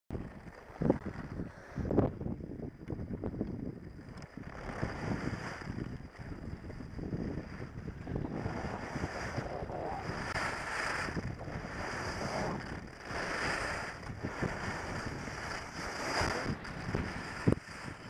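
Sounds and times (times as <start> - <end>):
wind rushing over microphone: 0.1 - 18.0
skis scraping over snow: 4.2 - 18.0.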